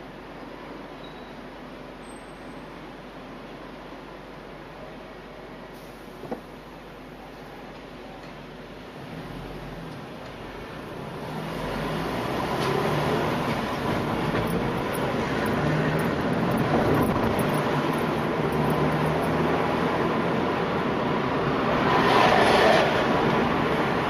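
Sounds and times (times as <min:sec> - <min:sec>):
streetcar passing close: 0:00.0 - 0:24.0
car road noise: 0:08.5 - 0:24.0.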